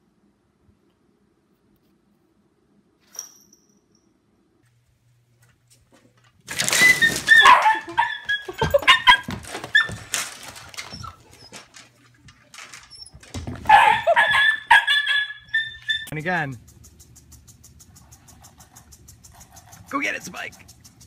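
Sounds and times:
puppy yipping and barking: 0:07.0 - 0:10.0, 0:13.7 - 0:16.1.

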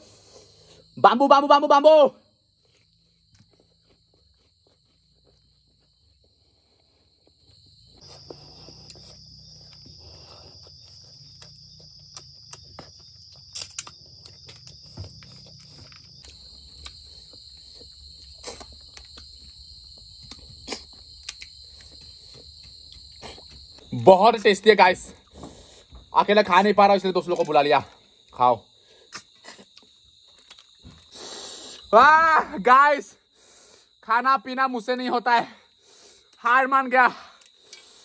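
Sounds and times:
high insect trill: 0:00.0 - 0:38.0
person eating snails: 0:02.4 - 0:24.0, 0:27.2 - 0:31.9, 0:35.7 - 0:36.4, 0:37.2 - 0:38.0.

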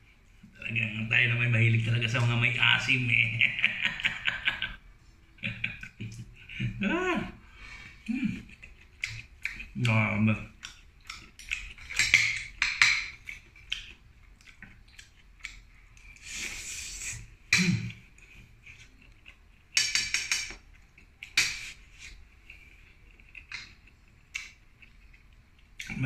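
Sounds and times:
rustling hiss: 0:16.1 - 0:17.4.

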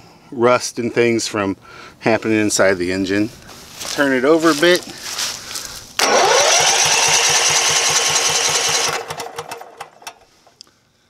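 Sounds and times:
engine cranking with rising whine: 0:06.0 - 0:10.2.

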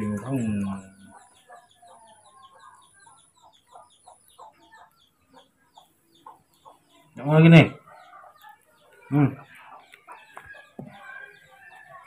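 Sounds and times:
faint animal clucking calls: 0:00.0 - 0:12.0.

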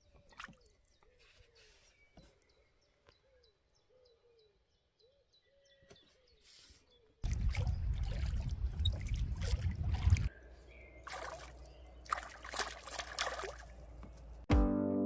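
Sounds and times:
water splashing and trickling: 0:00.0 - 0:01.1, 0:07.2 - 0:10.3, 0:11.0 - 0:14.5.

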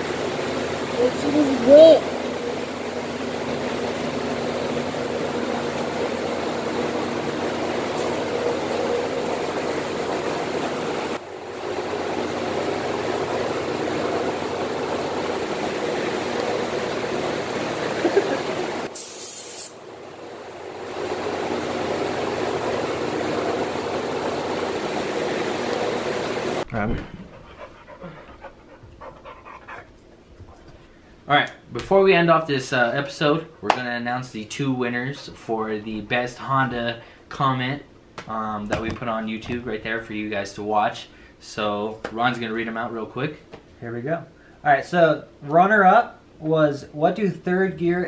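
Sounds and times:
heater blower running: 0:00.0 - 0:26.7.

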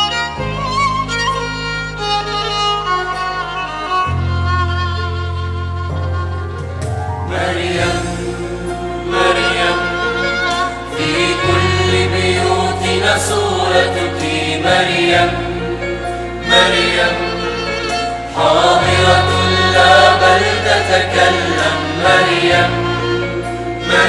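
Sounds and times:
instrumental accompaniment: 0:00.0 - 0:24.0
church choir singing a hymn: 0:07.2 - 0:24.0.

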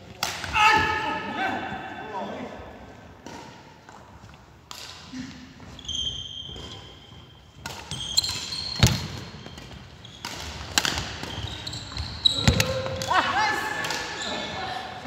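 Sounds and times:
shoes squeaking on wooden floor: 0:05.6 - 0:12.8
rackets smacking shuttlecock: 0:07.6 - 0:13.1, 0:13.7 - 0:14.5.

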